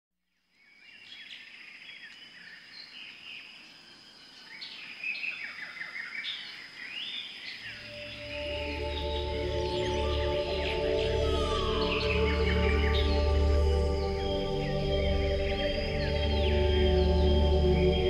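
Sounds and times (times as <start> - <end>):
birds chirping: 4.5 - 18.0
steady high-pitched tone: 7.7 - 18.0
music: 7.8 - 18.0.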